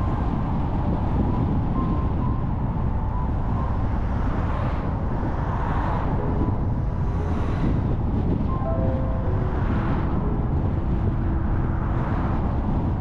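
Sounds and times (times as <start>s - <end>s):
car road and wind noise: 0.0s - 13.0s
car passing: 3.4s - 13.0s.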